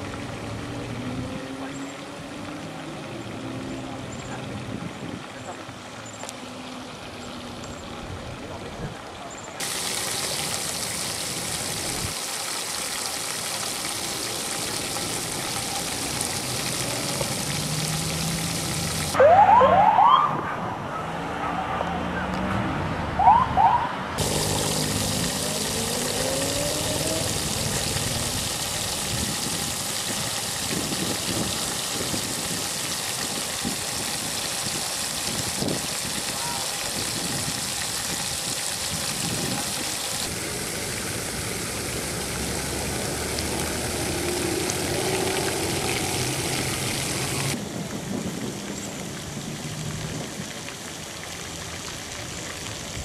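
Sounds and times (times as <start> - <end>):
emergency siren whoops: 19.2 - 20.6, 23.2 - 24.0, 25.4 - 27.7.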